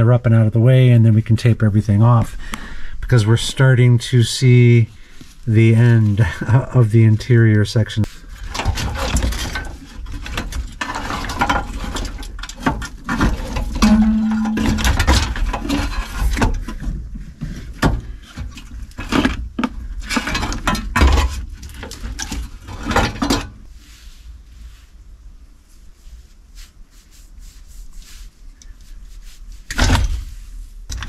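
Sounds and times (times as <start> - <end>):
wiring and connectors being handled: 8.4 - 23.5
low hum: 13.8 - 15.4.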